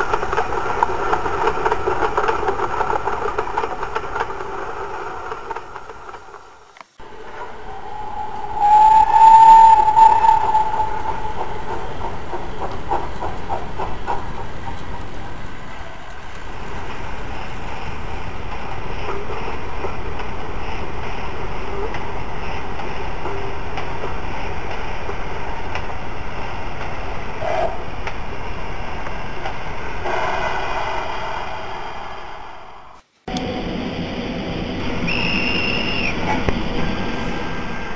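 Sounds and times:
model train wheels clattering: 0:00.0 - 0:07.0, 0:11.3 - 0:26.0
high squealing tone: 0:07.0 - 0:12.6.

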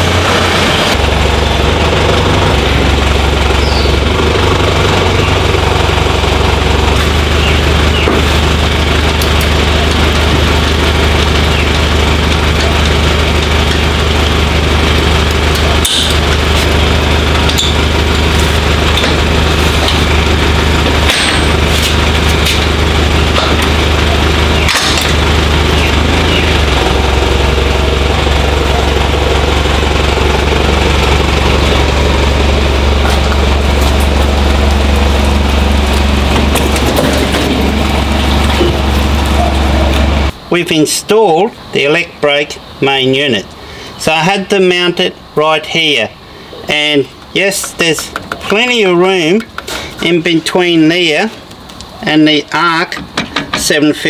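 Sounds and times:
vehicle engine idling: 0:00.0 - 0:40.5.

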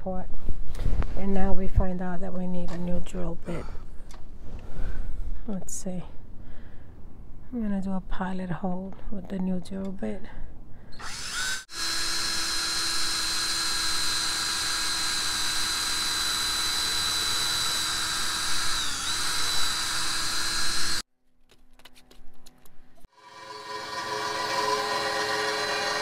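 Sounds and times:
cordless drill boring into wood: 0:11.0 - 0:21.1, 0:23.2 - 0:26.0.

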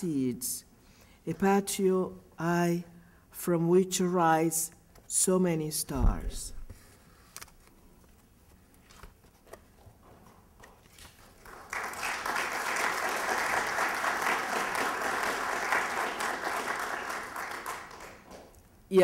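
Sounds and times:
audience applauding: 0:11.2 - 0:18.6.

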